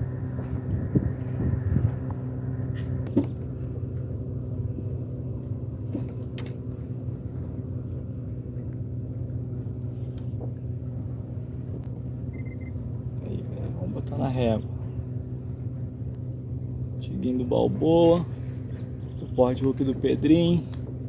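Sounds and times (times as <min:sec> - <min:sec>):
low motor drone: 0:00.0 - 0:21.0.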